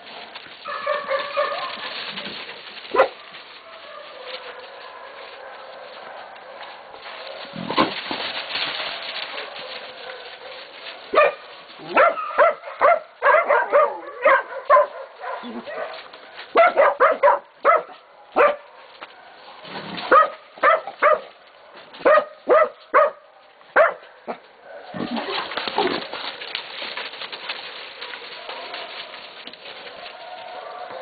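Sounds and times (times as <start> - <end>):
rough noisy commotion: 0.0 - 12.3, 24.8 - 31.0
dogs barking sharply: 0.6 - 2.2, 2.9 - 7.9, 9.3 - 19.4, 20.0 - 26.0.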